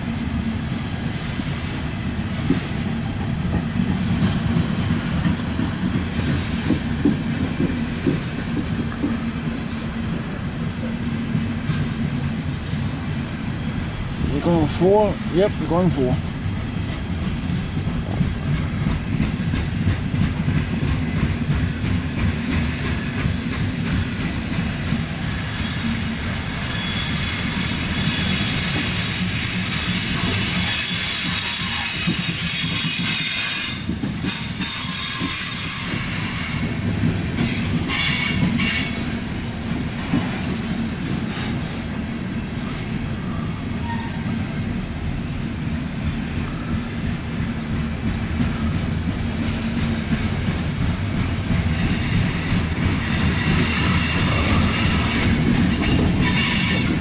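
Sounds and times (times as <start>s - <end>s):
train wheels rumbling on rail: 0.0s - 57.0s
high-pitched wheel squeal: 23.6s - 36.6s, 51.8s - 57.0s.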